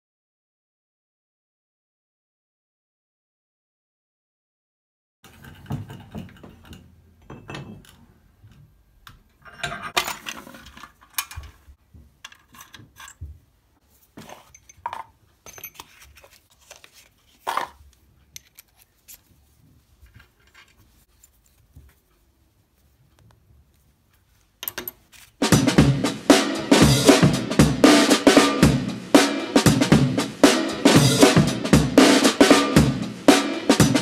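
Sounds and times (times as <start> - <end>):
steel tools clinking on metal: 9.4 - 10.4, 14.4 - 16.0.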